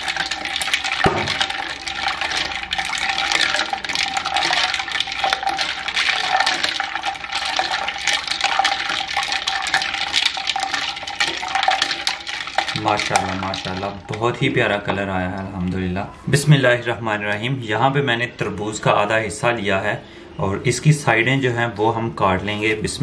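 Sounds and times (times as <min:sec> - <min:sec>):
ice cubes clinking in a bowl: 0:00.0 - 0:15.5
milk sloshing: 0:00.0 - 0:19.4.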